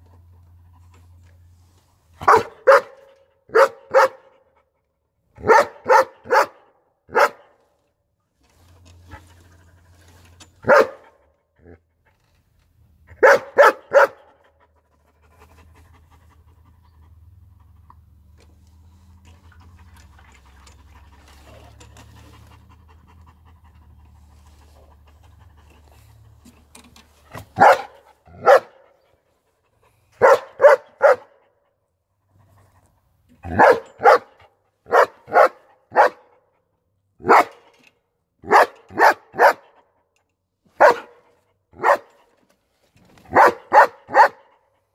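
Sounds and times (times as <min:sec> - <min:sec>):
dog barking: 0:02.2 - 0:04.4, 0:05.4 - 0:07.5, 0:10.6 - 0:11.2, 0:13.2 - 0:14.4, 0:27.6 - 0:28.9, 0:30.2 - 0:31.4, 0:33.5 - 0:36.3, 0:37.2 - 0:37.6, 0:38.4 - 0:39.8, 0:40.8 - 0:42.1, 0:43.3 - 0:44.5
dog panting: 0:14.6 - 0:18.0, 0:19.4 - 0:26.5.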